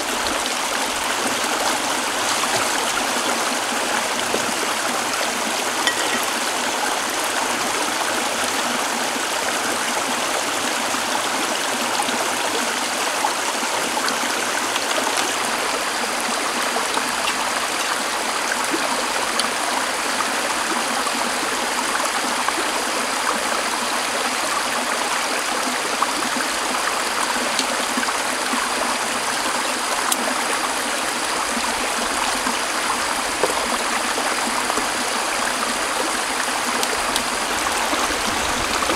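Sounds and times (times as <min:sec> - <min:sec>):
stream running over rocks: 0:00.0 - 0:38.9
cookware clicking: 0:05.8 - 0:06.4.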